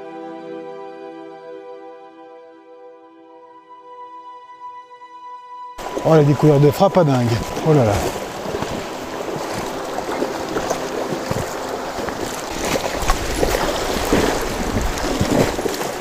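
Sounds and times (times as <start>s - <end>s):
river rushing over stones: 5.8s - 16.0s
wind buffeting microphone: 5.8s - 16.0s.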